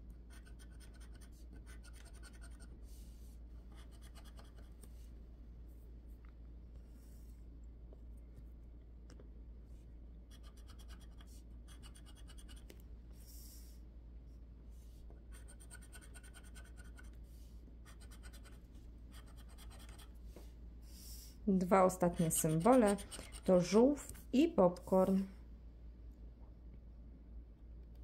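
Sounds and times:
scraper scratching lottery card: 0.3s - 2.6s, 15.4s - 17.1s, 17.9s - 18.6s, 19.2s - 20.1s, 21.6s - 24.0s.

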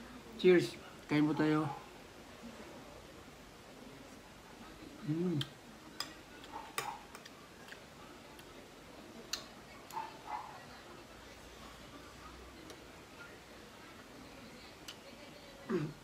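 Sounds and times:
metal spoon clinking on a dish: 6.0s - 7.3s.

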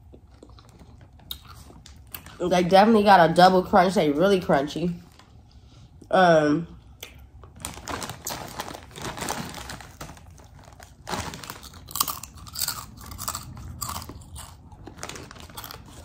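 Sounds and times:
chewing crunchy potato chips: 0.0s - 2.4s, 7.0s - 16.0s.

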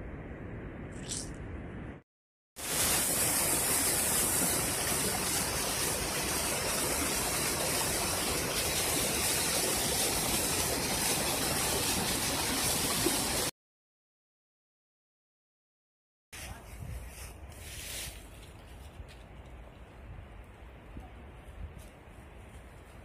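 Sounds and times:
waterfall pouring over rocks: 2.6s - 13.5s.

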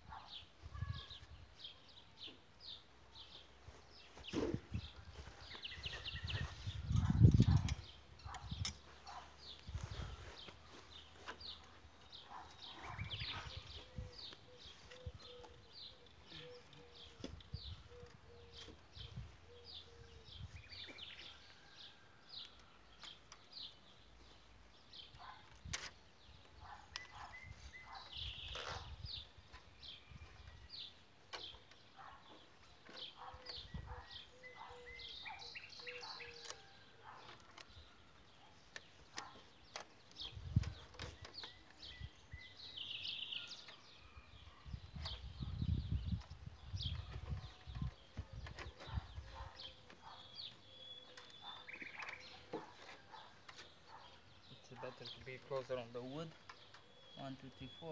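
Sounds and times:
small birds chirping: 0.0s - 57.9s
panels set down on grass: 4.0s - 6.5s.

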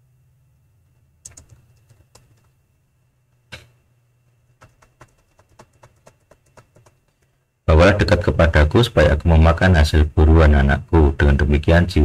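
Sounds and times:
computer keyboard typing: 1.2s - 2.5s, 4.6s - 7.3s.

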